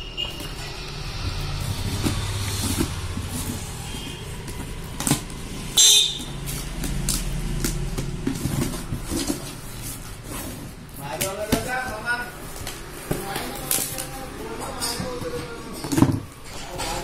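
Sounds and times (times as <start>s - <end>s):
packing tape ripping: 6.2s - 9.8s, 12.5s - 14.2s
cardboard flaps rustling: 6.2s - 14.0s.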